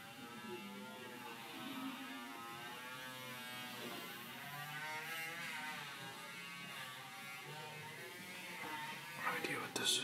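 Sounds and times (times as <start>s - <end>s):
buzz: 0.0s - 10.0s.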